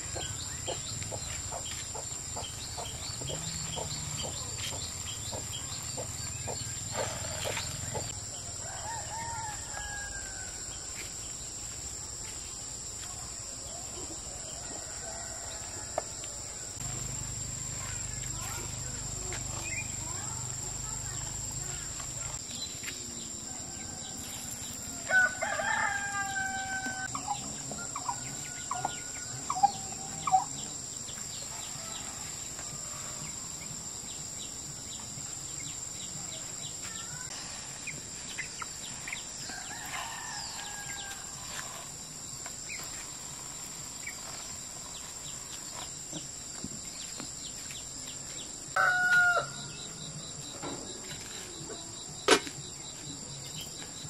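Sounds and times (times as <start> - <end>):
rooster crowing: 8.6 - 10.9, 14.6 - 16.8, 23.5 - 30.4, 39.4 - 41.6, 48.8 - 49.8
high-pitched insect drone: 16.4 - 54.0.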